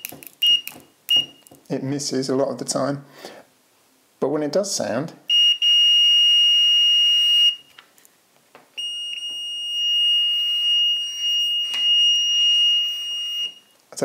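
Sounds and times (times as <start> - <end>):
multimeter continuity beep: 0.0 - 1.6, 5.3 - 7.7, 8.8 - 13.7.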